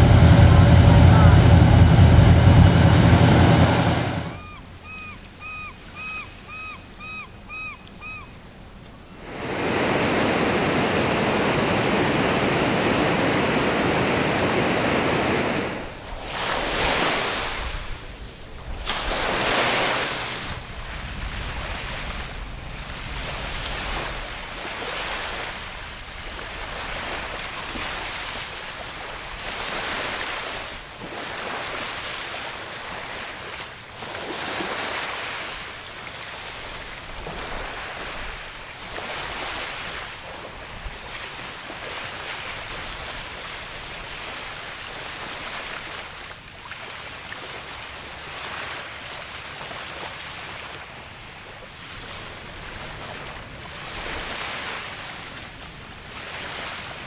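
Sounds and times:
surf breaking on rocky shore: 0.0s - 4.6s, 9.2s - 32.0s.

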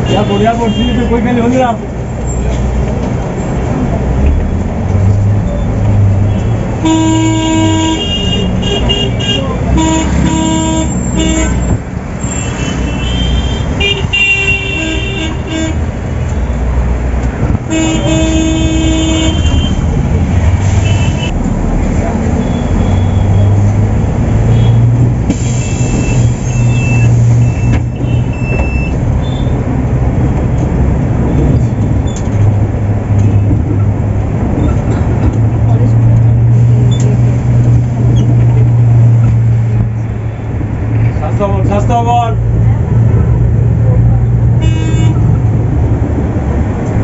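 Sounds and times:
vehicle horns tooting: 0.0s - 1.4s, 6.3s - 16.6s, 17.7s - 19.9s, 20.6s - 21.4s, 22.4s - 23.6s, 24.4s - 29.6s, 44.6s - 45.3s
bus road noise: 0.0s - 47.0s.

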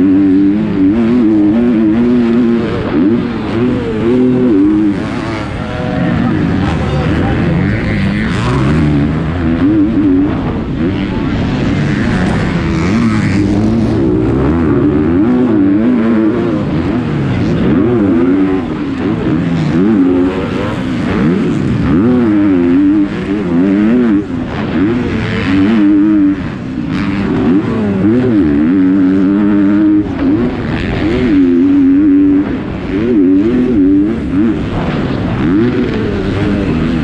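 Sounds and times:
motocross bike engine revving: 0.0s - 37.0s
rushing noise: 28.8s - 37.0s.

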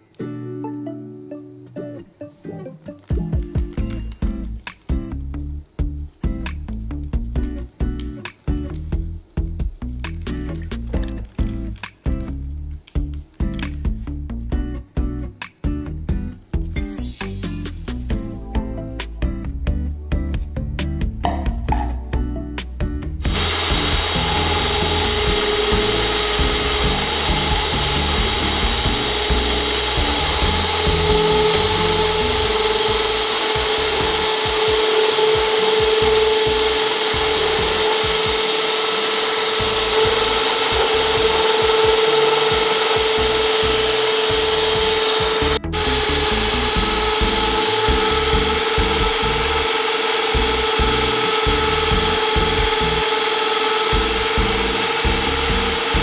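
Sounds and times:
electric mixer whining: 23.2s - 56.0s.

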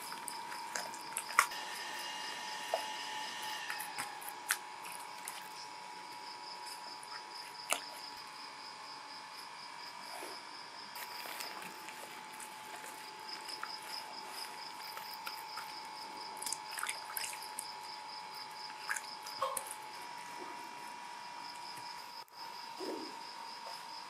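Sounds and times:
wet clay squelching: 0.0s - 8.2s, 11.0s - 19.8s
insects chirping: 0.0s - 24.0s.

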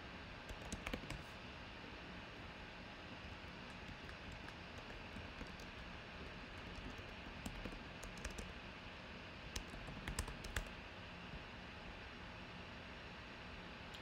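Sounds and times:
keyboard typing: 0.4s - 1.3s, 3.1s - 8.5s, 9.5s - 10.7s.

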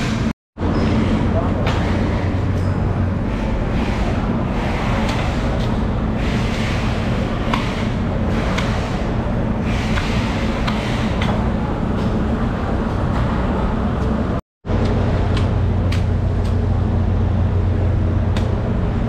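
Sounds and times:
low machine hum: 0.0s - 19.0s.

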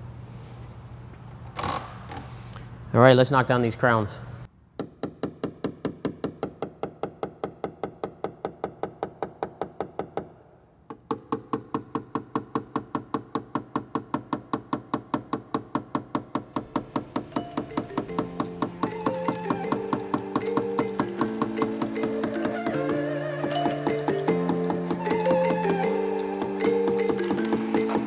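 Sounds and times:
tool tapping on metal panel: 4.8s - 10.3s, 10.9s - 28.0s
background music: 16.3s - 28.0s.

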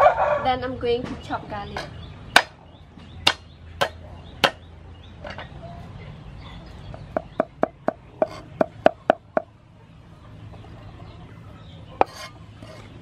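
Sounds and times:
cleaver chopping on wooden board: 2.3s - 2.6s, 3.2s - 4.6s.

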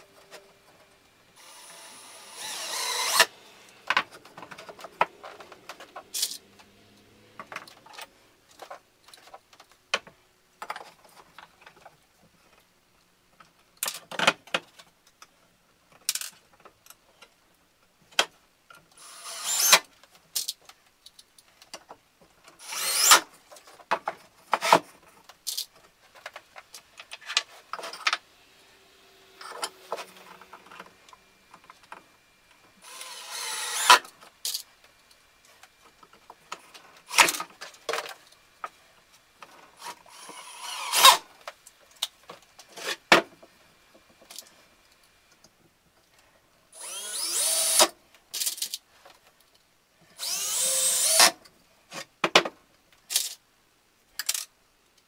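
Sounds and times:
drill driving screws: 1.4s - 3.9s, 19.0s - 19.8s, 22.6s - 23.3s, 32.8s - 34.1s, 39.8s - 41.3s, 46.8s - 47.9s, 50.2s - 51.4s.

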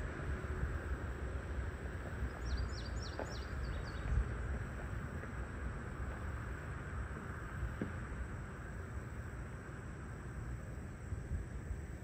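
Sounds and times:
steady low rumble: 0.0s - 12.0s
small bird chirping: 2.3s - 4.2s.

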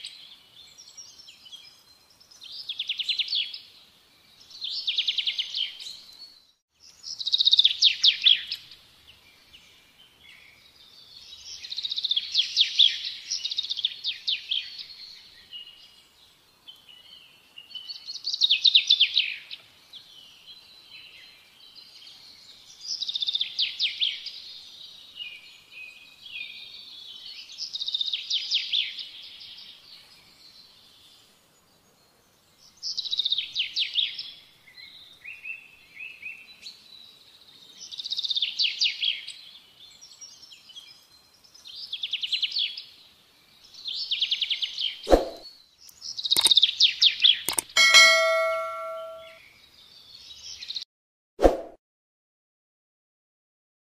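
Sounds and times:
songbird trilling and chirping: 43.7s - 49.4s.

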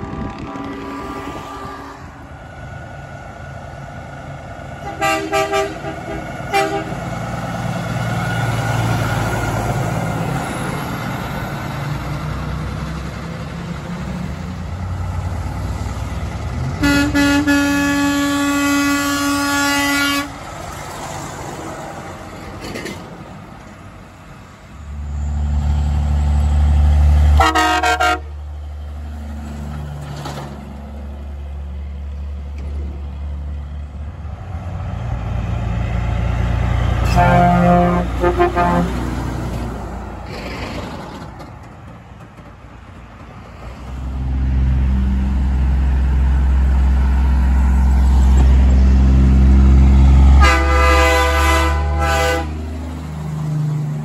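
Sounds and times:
truck air horn blasts: 0.0s - 2.3s, 4.8s - 7.1s, 16.8s - 20.4s, 27.4s - 28.4s, 37.0s - 39.2s, 50.3s - 52.7s
rumble of passing trucks: 0.0s - 54.0s
truck engine passing close: 0.0s - 54.0s.

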